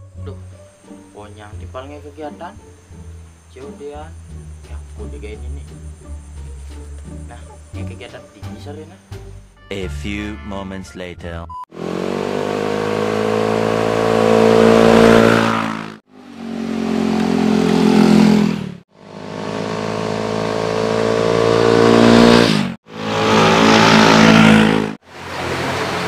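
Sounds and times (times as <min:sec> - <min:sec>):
vehicle engine revving: 0:11.7 - 0:26.0.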